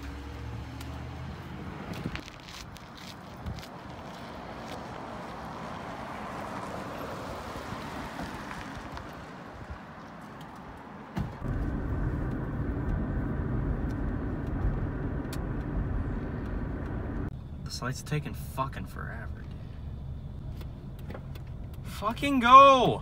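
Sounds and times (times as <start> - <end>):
hiss of passing traffic: 3.8 - 11.0
car engine rumble inside cabin: 11.4 - 17.7.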